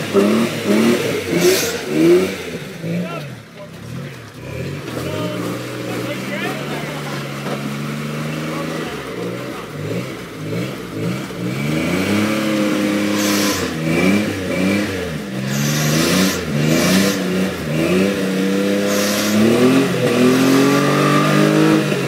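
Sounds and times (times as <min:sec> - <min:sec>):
truck engine revving: 0:00.0 - 0:22.0
short hiss bursts: 0:13.1 - 0:13.8, 0:15.5 - 0:16.4, 0:18.8 - 0:19.6.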